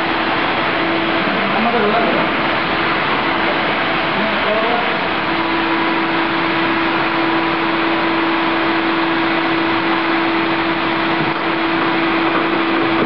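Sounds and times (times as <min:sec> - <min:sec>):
shop vacuum running: 0:00.0 - 0:13.0.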